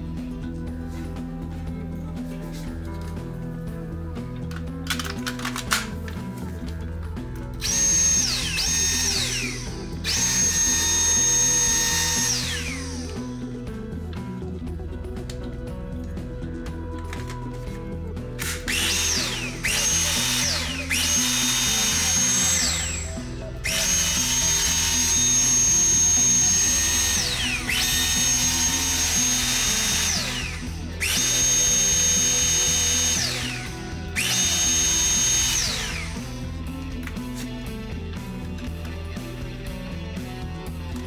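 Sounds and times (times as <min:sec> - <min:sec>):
background music: 0:00.0 - 0:41.0
vacuum motor whine: 0:07.6 - 0:13.8, 0:18.5 - 0:36.7.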